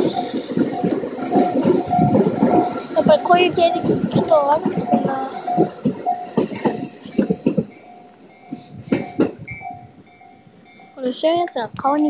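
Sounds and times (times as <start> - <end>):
train passing with rushing hiss: 0.0 - 11.7
train wheels clacking on rails: 0.0 - 12.0
repeating ringing tone: 4.8 - 11.3.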